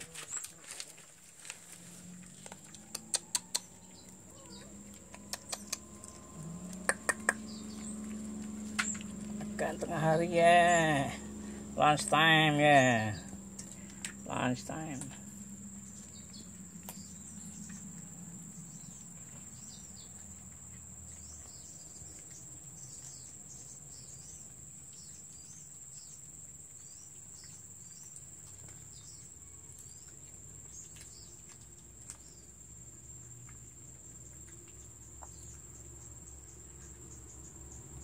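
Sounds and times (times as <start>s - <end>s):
bird chirps: 2.8s - 11.7s, 15.8s - 18.0s.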